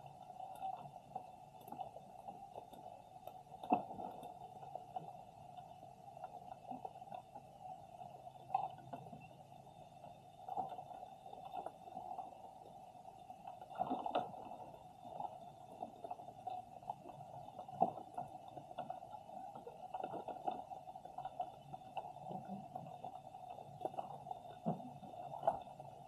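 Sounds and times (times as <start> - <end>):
muffled underwater hum: 0.0 - 26.0.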